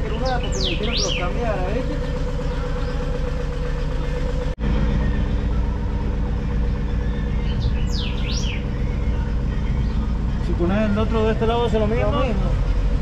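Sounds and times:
bird chirps: 0:00.0 - 0:03.5, 0:06.7 - 0:10.2
vehicle engine idling: 0:00.0 - 0:13.0.

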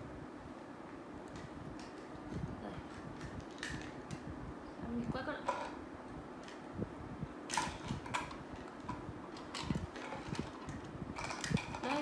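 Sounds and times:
faint steady hum: 0:00.0 - 0:12.0
plastic toys clicking and knocking: 0:02.9 - 0:04.2, 0:05.4 - 0:05.8, 0:07.5 - 0:12.0.

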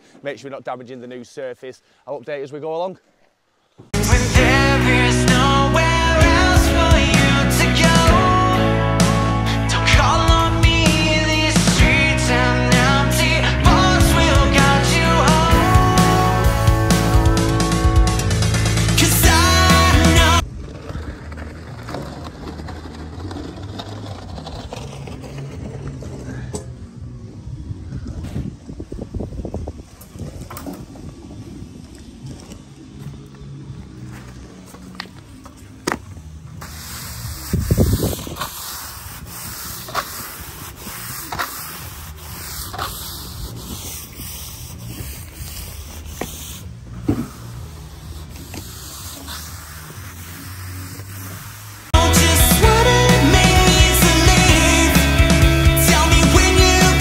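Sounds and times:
trowel scraping wet gravel: 0:19.0 - 0:26.5, 0:34.1 - 0:55.2.

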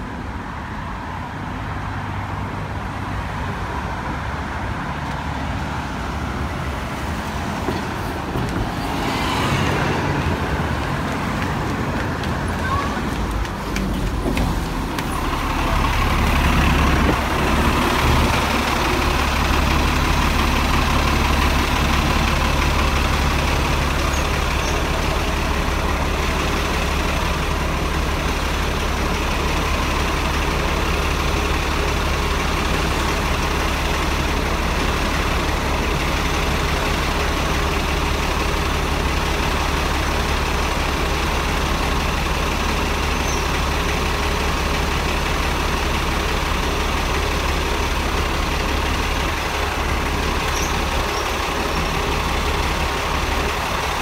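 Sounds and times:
bus engine humming: 0:00.0 - 0:54.0.

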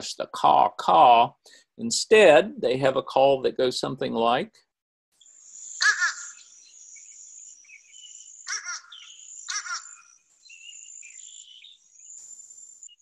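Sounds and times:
faint bird chirps: 0:05.2 - 0:13.0
high insect trill: 0:05.2 - 0:13.0
crow calling: 0:05.7 - 0:11.9.

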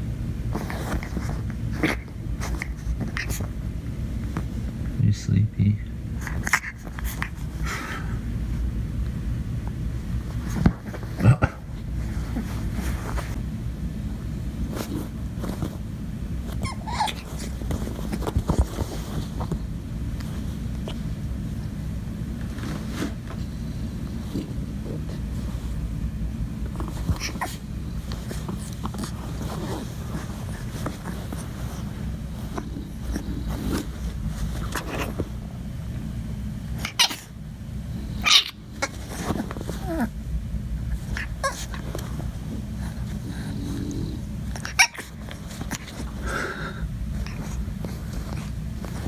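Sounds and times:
steady low rumble: 0:00.0 - 0:16.6, 0:17.2 - 0:49.0
fabric rustling and scraping: 0:00.5 - 0:03.6, 0:11.8 - 0:13.4, 0:14.6 - 0:21.2, 0:22.3 - 0:26.0, 0:26.6 - 0:35.5, 0:38.8 - 0:40.1, 0:47.1 - 0:49.0
puppy whining: 0:16.5 - 0:18.9, 0:26.8 - 0:35.3, 0:36.8 - 0:37.4, 0:38.2 - 0:40.2, 0:40.8 - 0:46.6.

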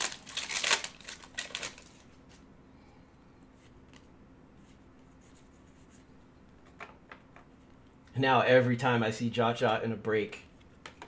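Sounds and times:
trading cards and wrapper rustling: 0:00.0 - 0:02.4.

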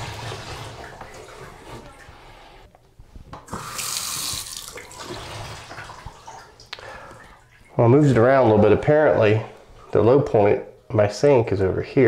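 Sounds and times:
faucet running into sink: 0:03.5 - 0:07.0.

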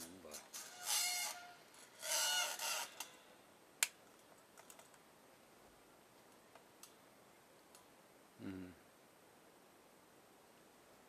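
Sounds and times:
lamp arm squeaking: 0:00.6 - 0:03.2.

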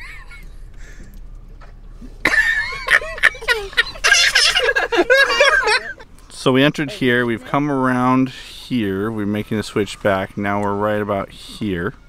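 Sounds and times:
people laughing and exclaiming: 0:02.3 - 0:06.1.

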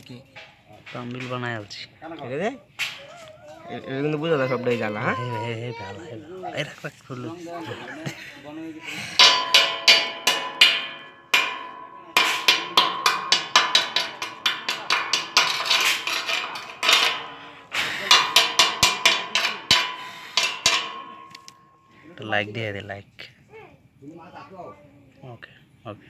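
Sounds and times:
hammer striking steel tube: 0:09.2 - 0:22.0.

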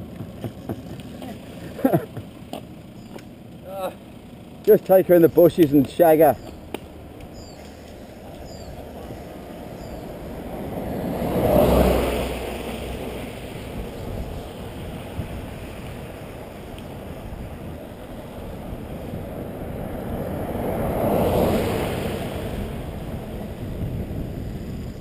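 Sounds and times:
wind rushing over microphone: 0:07.3 - 0:25.0.

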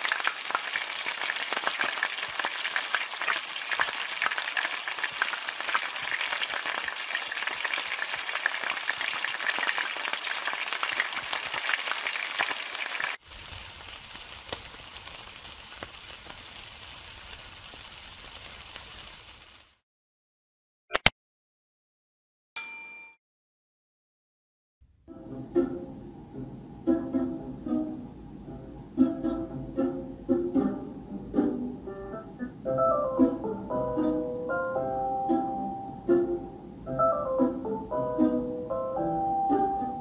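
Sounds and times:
food sizzling in hot oil: 0:00.0 - 0:19.8.

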